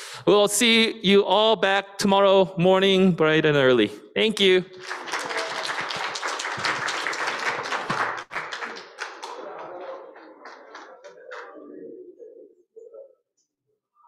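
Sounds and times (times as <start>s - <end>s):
audience applauding: 4.8s - 11.6s.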